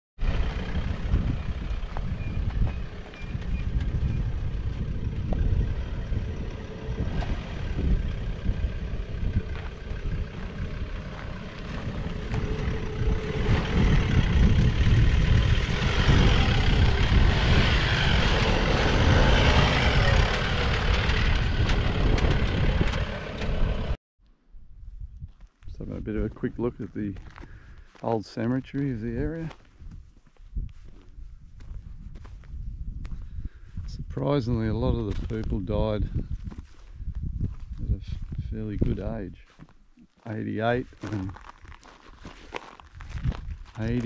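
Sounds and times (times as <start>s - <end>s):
vehicle engine crawling over rocks: 0.2s - 24.0s, 38.2s - 44.0s.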